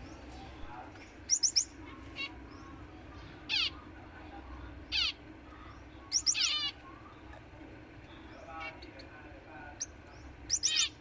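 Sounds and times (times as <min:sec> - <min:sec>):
finches giving high calls: 0:01.2 - 0:02.8, 0:03.4 - 0:03.9, 0:04.9 - 0:06.8, 0:09.8 - 0:11.0.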